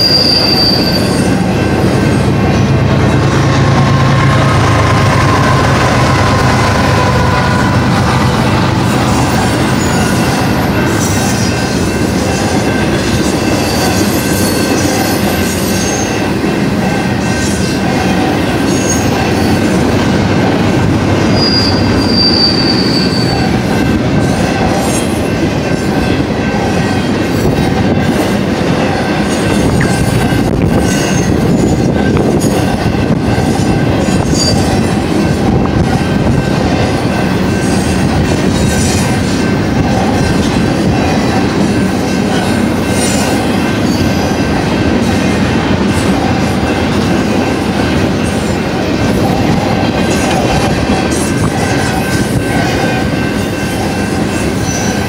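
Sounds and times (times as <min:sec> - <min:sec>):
high wheel squeals: 0:00.0 - 0:01.4, 0:21.2 - 0:23.7, 0:34.1 - 0:34.8
freight train wheels rumbling: 0:00.0 - 0:55.0.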